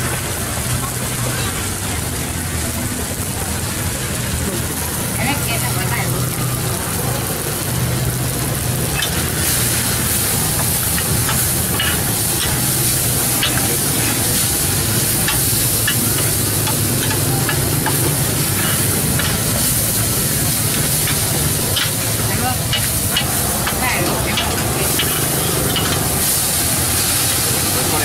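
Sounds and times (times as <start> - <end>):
food sizzling on flat pan: 0.0 - 28.0.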